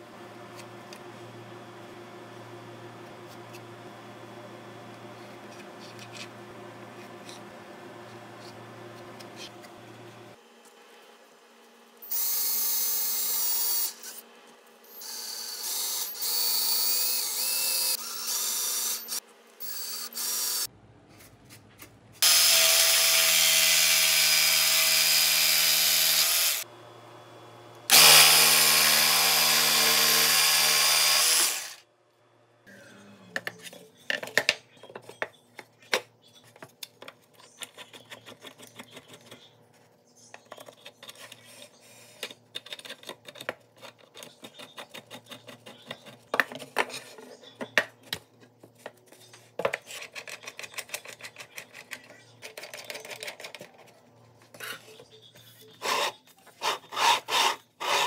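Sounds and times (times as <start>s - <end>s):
cordless drill boring into plywood: 27.9s - 31.8s.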